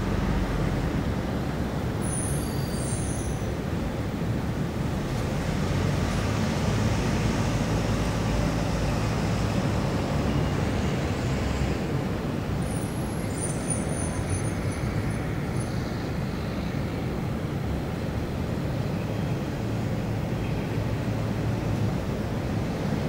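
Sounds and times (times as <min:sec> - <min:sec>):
traffic rumble: 0:00.0 - 0:23.0
faint high squeaks: 0:02.0 - 0:03.4.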